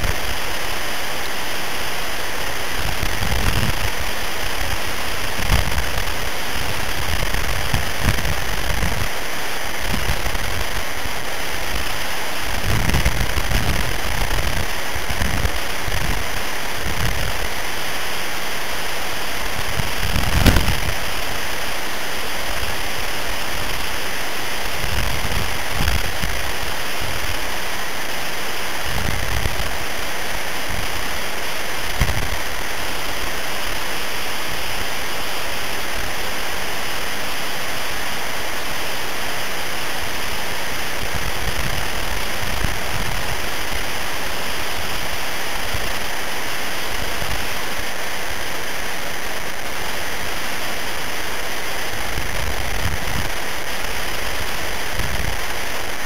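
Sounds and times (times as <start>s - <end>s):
wind blowing across microphone: 2.3s - 36.4s, 38.8s - 50.2s, 51.7s - 56.0s.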